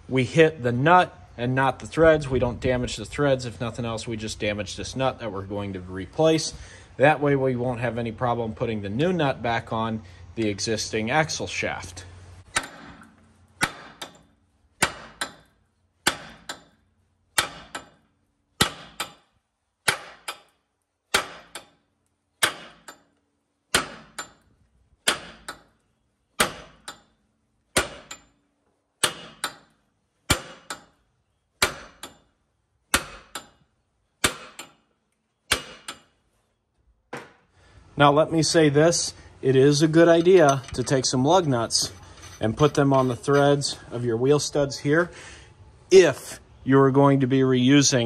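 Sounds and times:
sledgehammer striking metal: 12.4s - 16.8s, 17.4s - 21.8s, 22.4s - 23.1s, 23.7s - 24.4s, 25.0s - 25.7s, 26.4s - 28.4s, 29.0s - 31.0s, 31.6s - 32.3s, 32.9s - 33.6s, 34.2s - 34.8s, 35.5s - 36.1s.

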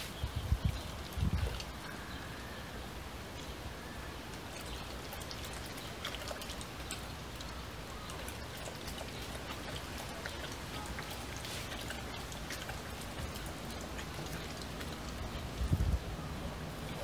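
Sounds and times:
dog lapping water: 0.7s - 2.0s, 4.3s - 17.0s.

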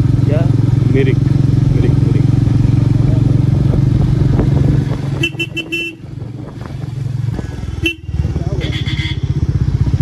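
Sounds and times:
motorcycle engine running: 0.0s - 10.0s
horn toots: 5.1s - 6.2s, 7.7s - 9.4s.

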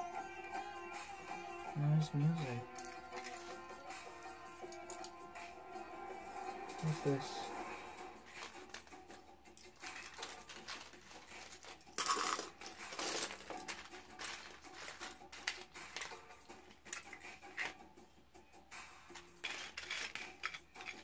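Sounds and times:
plastic toy bricks clattering: 9.7s - 16.2s, 19.4s - 21.0s.

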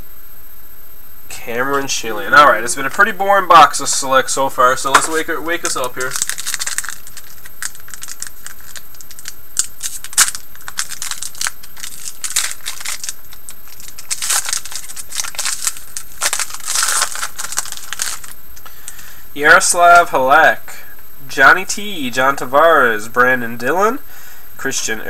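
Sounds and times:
foil wrapper crinkling: 3.8s - 19.1s.

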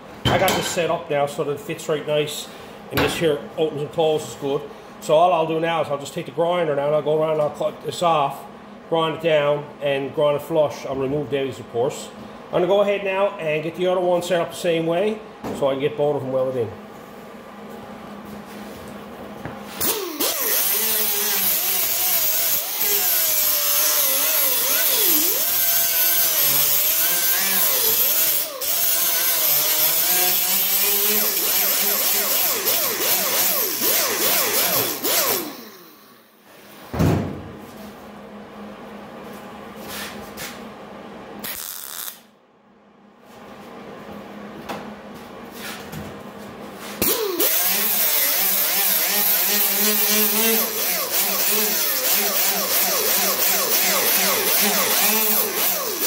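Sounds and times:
angle grinder grinding metal: 19.8s - 36.1s, 47.0s - 56.0s.

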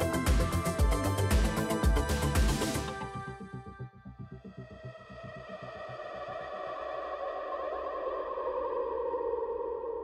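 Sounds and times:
background music with held tones: 0.0s - 7.9s.

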